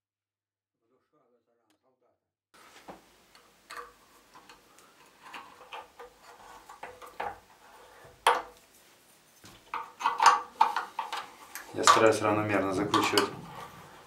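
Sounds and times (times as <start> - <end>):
light metal clicks and knocks: 9.5 - 13.5.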